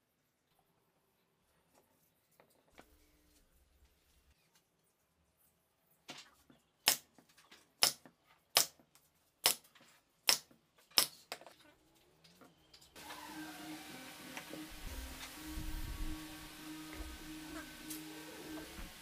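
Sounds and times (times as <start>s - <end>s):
nail gun firing: 7.8s - 8.0s
music: 13.0s - 19.0s.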